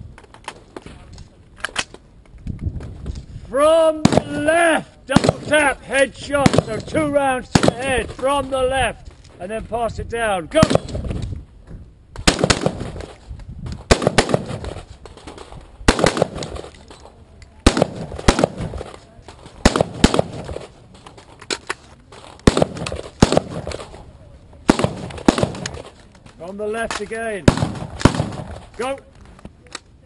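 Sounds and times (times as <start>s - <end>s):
rifle double tap shots: 12.2s - 13.1s, 13.9s - 14.7s, 15.9s - 16.7s, 17.6s - 18.9s, 19.6s - 20.6s, 22.5s - 23.8s, 24.7s - 25.9s, 26.9s - 28.6s.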